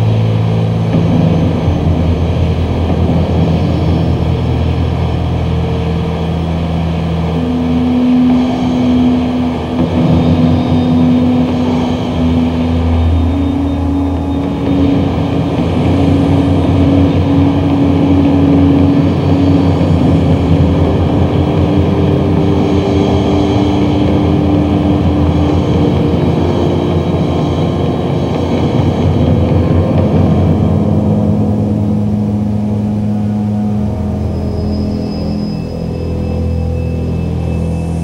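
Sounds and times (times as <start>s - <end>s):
rumbling ambient drone: 0.0s - 38.0s.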